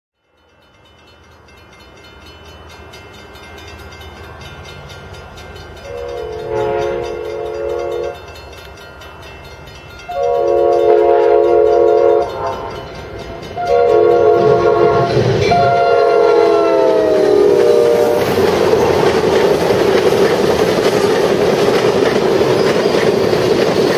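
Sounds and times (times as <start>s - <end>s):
diesel locomotive rumble: 2.6s - 23.9s
locomotive air horn blasts: 5.8s - 8.2s, 10.1s - 12.8s, 13.6s - 18.4s.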